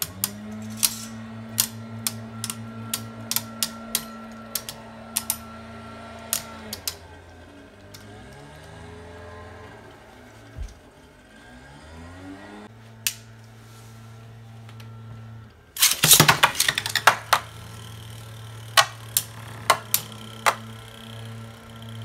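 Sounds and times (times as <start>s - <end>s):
spinning tops clacking together: 0.0s - 5.4s, 15.8s - 17.7s
low steady hum: 0.0s - 22.0s
spinning tops clattering: 0.6s - 1.2s, 15.8s - 17.7s.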